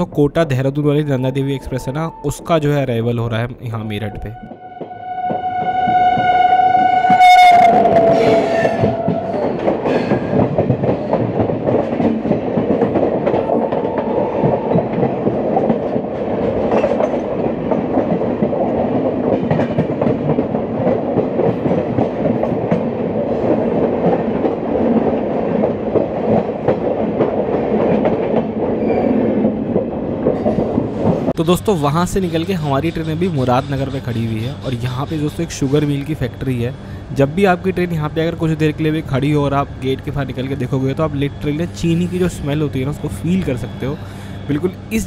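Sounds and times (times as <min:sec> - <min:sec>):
train rumbling on rails: 0:00.0 - 0:45.0
train horn: 0:04.1 - 0:09.8, 0:13.5 - 0:15.2
train wheel clicks: 0:07.9 - 0:36.5.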